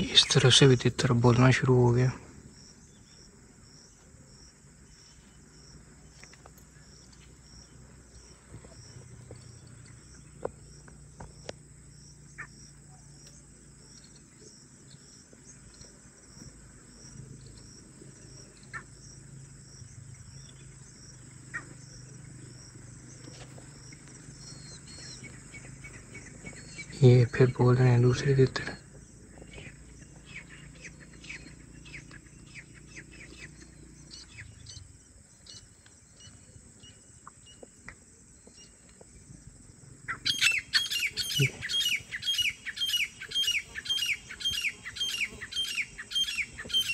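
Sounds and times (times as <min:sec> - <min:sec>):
insect chirping: 0:00.0 - 0:46.9
faint bird calls: 0:12.2 - 0:37.8, 0:40.0 - 0:46.9.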